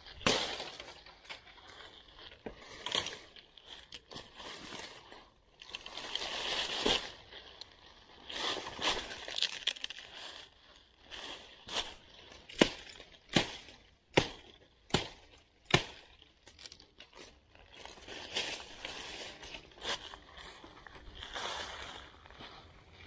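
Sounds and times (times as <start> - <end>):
dry leaves crunching: 0.0 - 23.0
hatchet chopping branch: 12.5 - 16.2.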